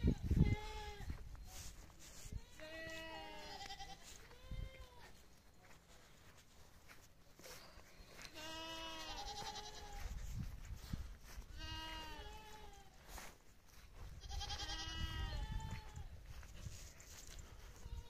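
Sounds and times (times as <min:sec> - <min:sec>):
goat bleating: 0:02.4 - 0:05.1, 0:08.2 - 0:10.1, 0:11.4 - 0:13.0, 0:14.2 - 0:16.0.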